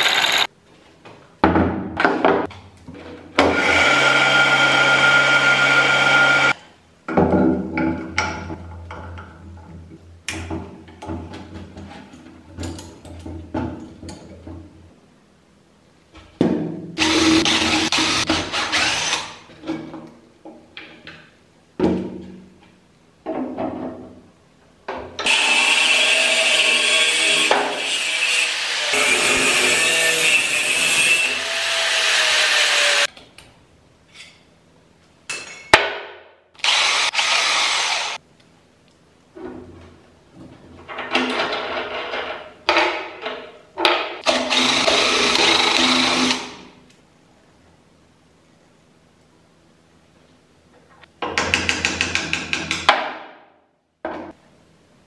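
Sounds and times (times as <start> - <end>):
power tool running: 0.0 - 0.5, 3.5 - 6.6, 17.0 - 19.3, 36.6 - 38.2, 44.2 - 46.6.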